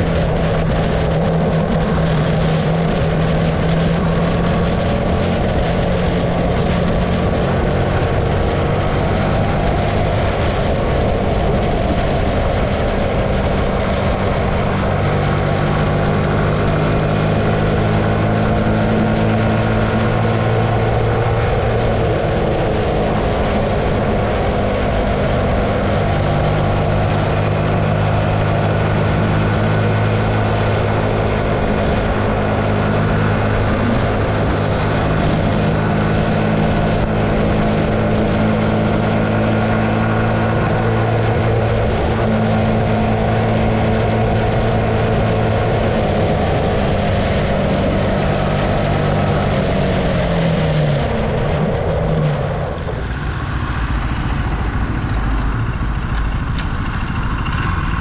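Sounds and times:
motorcycle engine running: 0:00.0 - 0:58.0
wind noise: 0:00.0 - 0:58.0.

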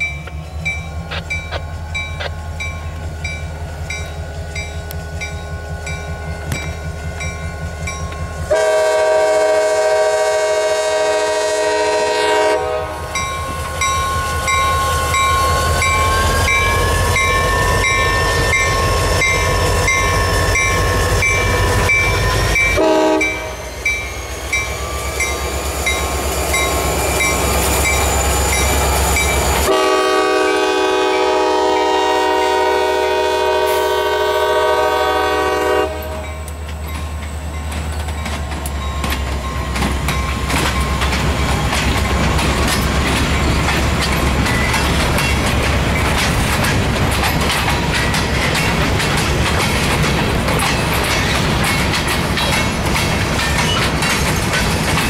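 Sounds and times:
locomotive air horn: 0:08.5 - 0:21.0, 0:22.7 - 0:23.6, 0:29.6 - 0:36.4.

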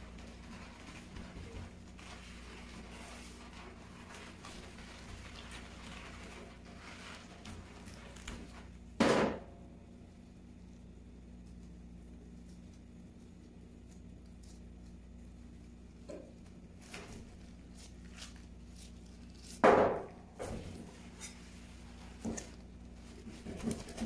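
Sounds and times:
soft scrapes and rustles: 0:00.0 - 0:08.8, 0:16.8 - 0:19.6, 0:20.4 - 0:24.0
steady low hum: 0:00.0 - 0:24.0.

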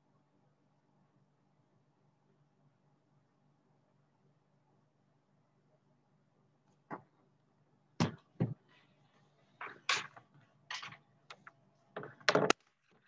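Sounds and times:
knocks and thumps: 0:08.0 - 0:08.7.

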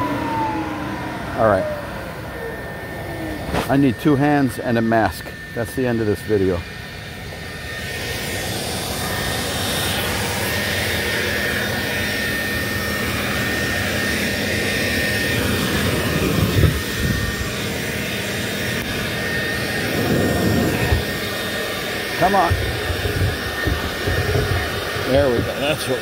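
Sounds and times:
floor sander grinding wood: 0:08.0 - 0:26.0.

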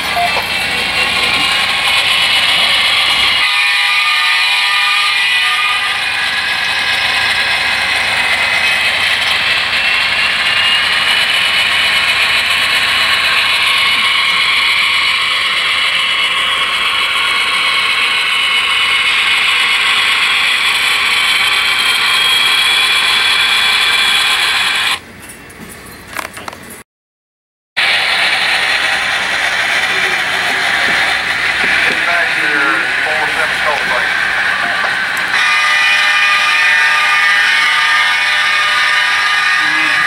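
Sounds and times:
model train motor whirring: 0:06.0 - 0:25.0
high whine: 0:27.9 - 0:38.0.

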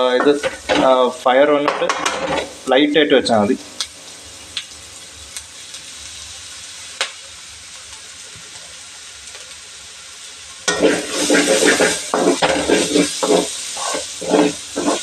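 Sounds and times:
vegetables sizzling in oil: 0:00.0 - 0:15.0
spoon scraping in pan: 0:10.7 - 0:15.0.

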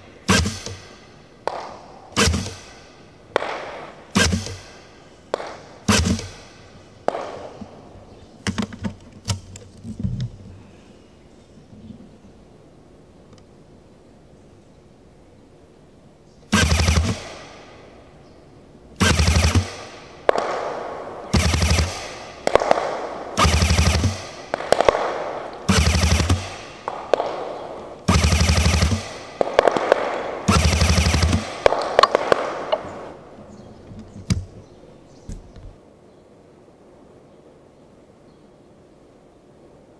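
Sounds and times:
automatic gun bursts: 0:03.4 - 0:04.7, 0:05.3 - 0:06.4, 0:16.5 - 0:17.4, 0:19.0 - 0:20.7, 0:21.3 - 0:33.0.

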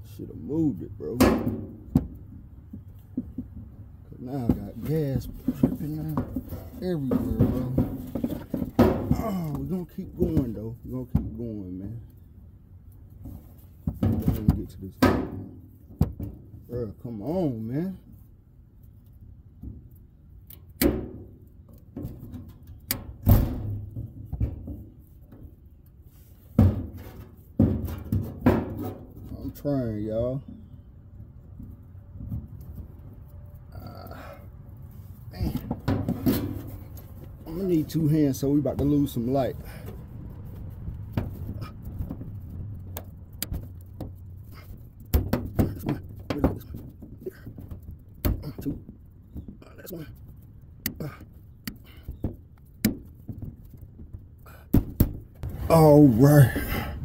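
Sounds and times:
tools knocking and clunking: 0:01.1 - 0:11.4, 0:13.2 - 0:16.6, 0:35.4 - 0:55.5.

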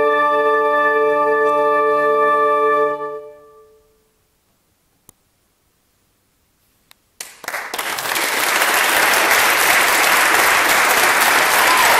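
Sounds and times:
faint click: 0:05.0 - 0:05.2, 0:06.8 - 0:07.0
audience applause: 0:07.2 - 0:11.9.

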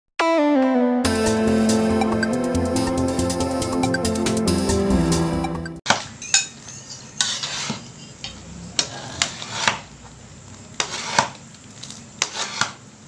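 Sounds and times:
utensils scraping and clinking on pan: 0:05.9 - 0:10.0, 0:10.7 - 0:12.8
utensils stirring noodles in wok: 0:05.9 - 0:12.9.

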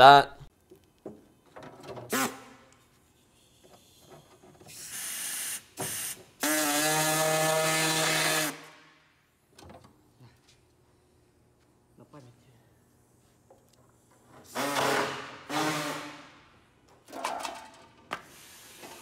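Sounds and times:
pneumatic drill whine with air hiss: 0:03.8 - 0:08.5, 0:18.2 - 0:19.0.

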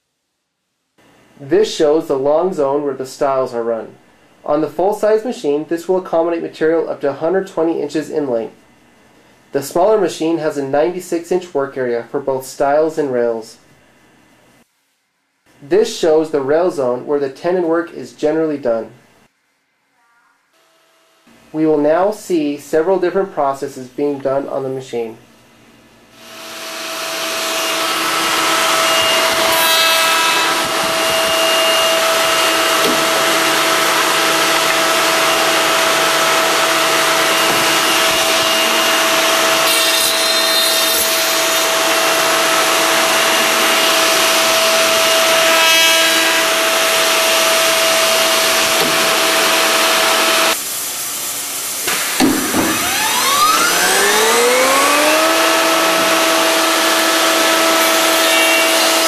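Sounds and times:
cnc machine spindles whining: 0:26.2 - 0:50.6, 0:52.6 - 0:59.0
spindle spinning up: 0:52.7 - 0:56.5.

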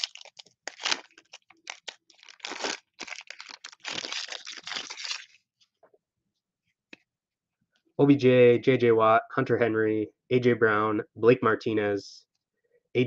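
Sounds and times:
foil wrapper tearing and crinkling: 0:00.0 - 0:05.4.

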